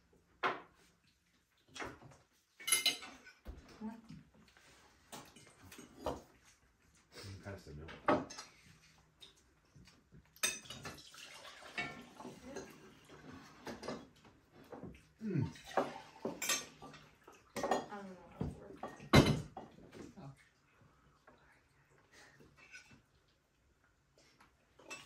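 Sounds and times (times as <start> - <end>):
cutlery clinking on plates: 2.6 - 3.5, 5.1 - 6.5, 10.3 - 11.1, 15.7 - 19.9.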